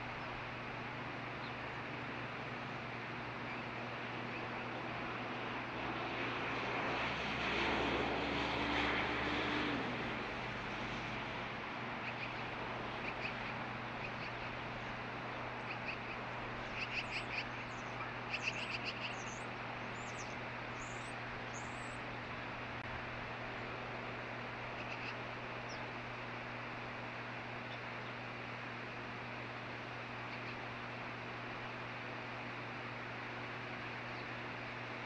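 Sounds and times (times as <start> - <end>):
bus passing: 2.1 - 24.9
osprey chirps: 15.6 - 22.0.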